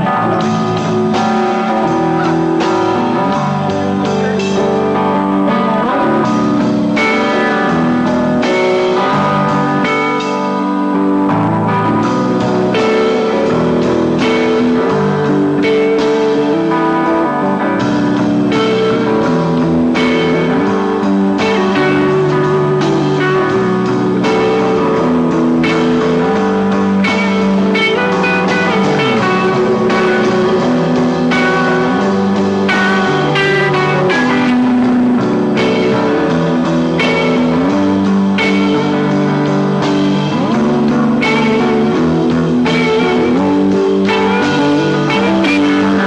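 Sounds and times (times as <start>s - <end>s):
drum kit: 0.0s - 46.0s
electric guitars: 0.0s - 46.0s.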